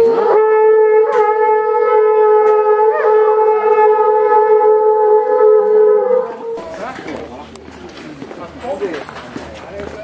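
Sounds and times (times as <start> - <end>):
conch-shell trumpet long note: 0.0 - 6.6.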